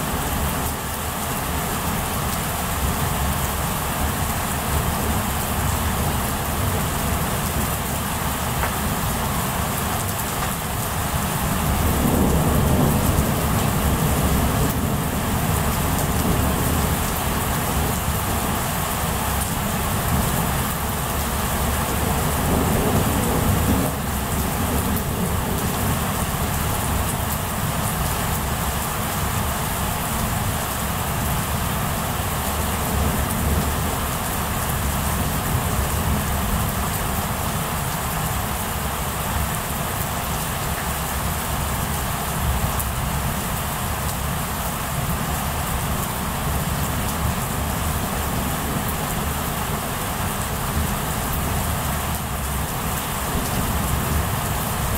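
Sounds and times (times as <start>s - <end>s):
heavy rain falling: 0.0s - 54.9s
low thunder rumble: 11.2s - 18.6s, 21.8s - 27.1s.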